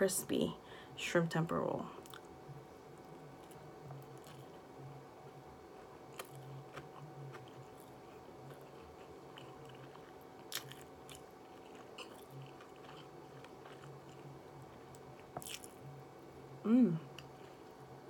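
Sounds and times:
faint steady hum: 0:00.0 - 0:18.0
person chewing crunchy food: 0:03.0 - 0:04.8, 0:05.8 - 0:15.9.

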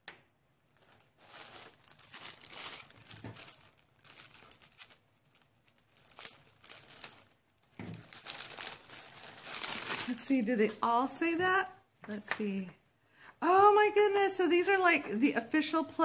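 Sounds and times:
plastic bag crinkling: 0:00.7 - 0:11.7.

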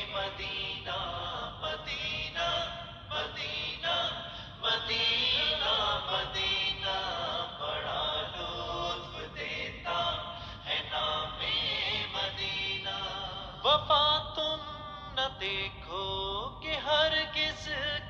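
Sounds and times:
devotional chant-like singing: 0:00.0 - 0:18.0.

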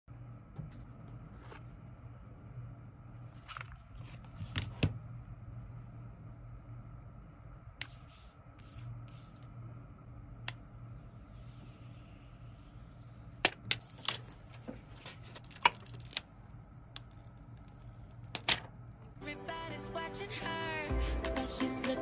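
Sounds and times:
low steady hum: 0:00.1 - 0:22.0
plastic film peeling crackles: 0:15.1 - 0:16.3.

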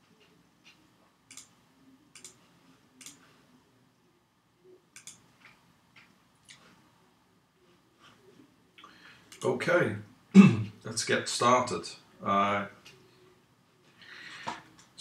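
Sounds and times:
faint computer mouse clicks: 0:00.6 - 0:01.5, 0:02.1 - 0:02.4, 0:05.0 - 0:06.6.

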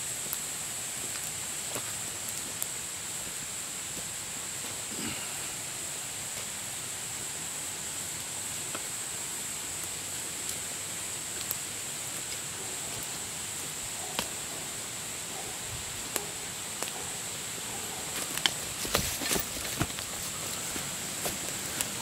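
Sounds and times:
steady high hiss: 0:00.0 - 0:22.0
footsteps on dry leaves: 0:18.1 - 0:22.0.

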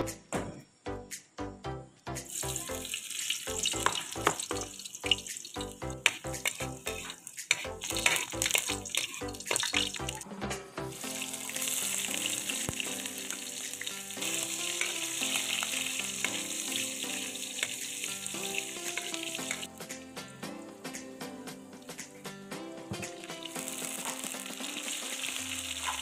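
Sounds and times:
garlic sizzling in oil: 0:02.3 - 0:10.2, 0:10.9 - 0:19.8, 0:23.0 - 0:26.0
metal spatula stirring wok: 0:02.9 - 0:10.2, 0:11.0 - 0:19.7.

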